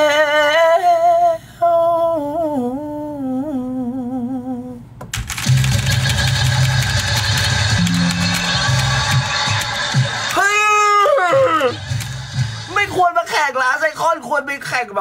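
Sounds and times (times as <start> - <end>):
recorded music with bass line: 5.2 - 12.9.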